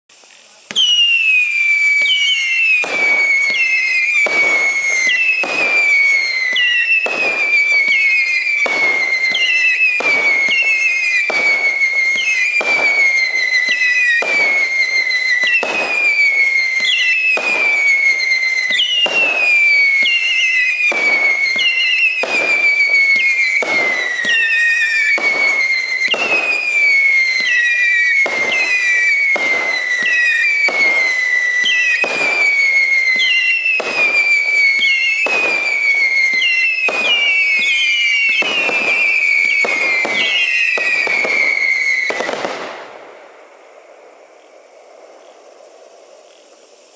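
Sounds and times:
fireworks bangs: 0:00.1 - 0:46.9
fireworks howling whistles: 0:00.1 - 0:46.9.

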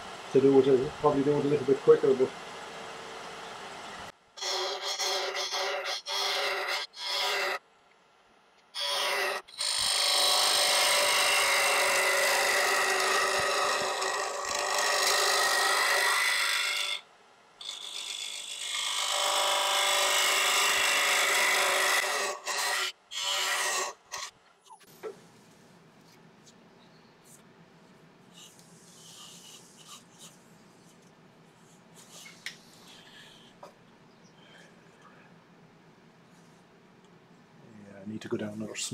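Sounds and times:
turning tool scraping wood on lathe: 0:04.4 - 0:07.6, 0:08.8 - 0:17.0, 0:17.6 - 0:24.3.

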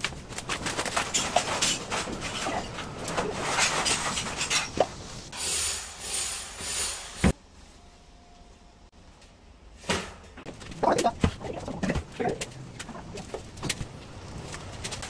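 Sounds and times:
rubble being shovelled: 0:00.2 - 0:07.1.

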